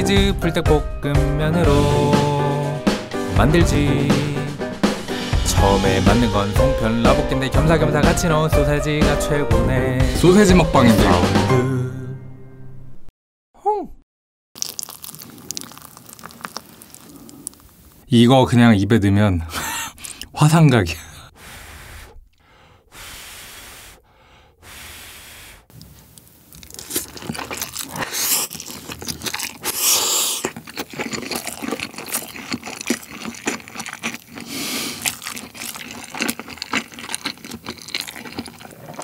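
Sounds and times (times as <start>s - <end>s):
breath puffed out: 14.6s - 18.0s, 21.3s - 26.1s, 29.6s - 30.5s, 34.4s - 35.0s
wet chewing and slurping: 14.6s - 18.0s, 19.9s - 20.3s, 25.7s - 39.0s.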